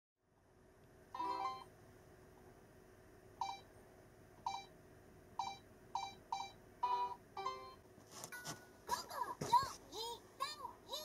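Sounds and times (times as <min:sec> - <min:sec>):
alarm clock short beeps: 0:03.4 - 0:03.6, 0:05.4 - 0:07.8.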